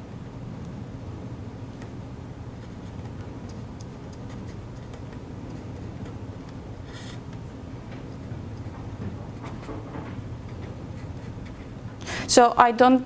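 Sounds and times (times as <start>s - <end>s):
low room hum: 0.0s - 13.0s
pen scratching on paper: 10.5s - 11.8s.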